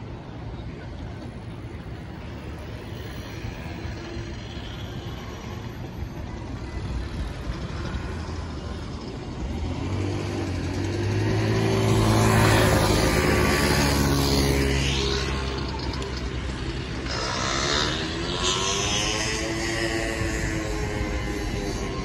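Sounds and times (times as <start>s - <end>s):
low traffic rumble: 0.0s - 22.0s
motorcycle engine passing: 7.8s - 22.0s.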